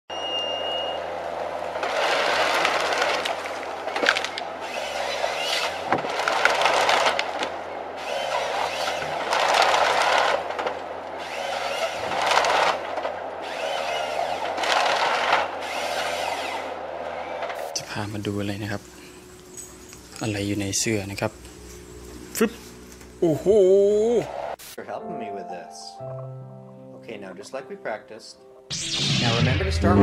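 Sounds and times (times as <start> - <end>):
diesel engine hum: 0.1 - 24.5
harvester head sawing trunks: 1.2 - 23.2
wood cracking: 1.4 - 17.7.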